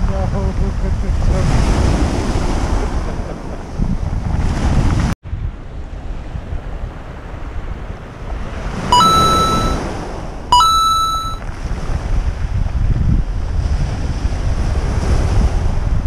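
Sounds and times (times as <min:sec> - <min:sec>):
wind buffeting microphone: 0:00.0 - 0:08.9, 0:11.5 - 0:16.0
surf: 0:06.5 - 0:09.8
two-note chime: 0:09.0 - 0:09.8, 0:10.6 - 0:11.4.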